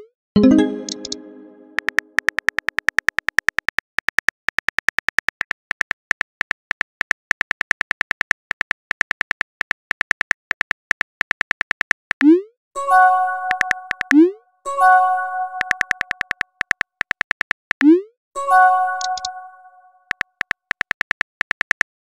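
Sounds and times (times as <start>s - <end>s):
musical chime: 0.4s - 1.8s
phone keyboard typing clicks: 0.6s - 12.3s, 13.5s - 14.2s, 15.6s - 17.9s, 18.9s - 19.4s, 20.1s - 22.0s.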